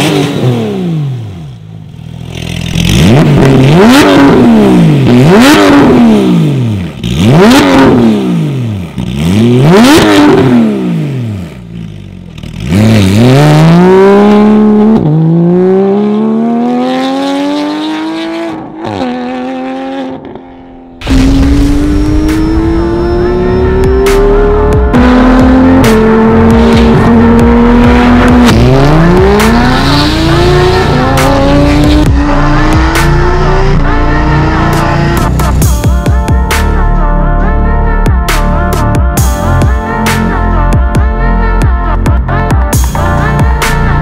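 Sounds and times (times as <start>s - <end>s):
sports car engine revving: 0.0s - 35.8s
sports car accelerating hard: 2.1s - 35.6s.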